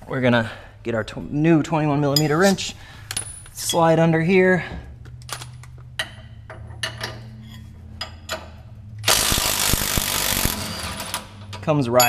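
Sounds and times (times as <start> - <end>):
impact wrench hammering: 9.0 - 11.2.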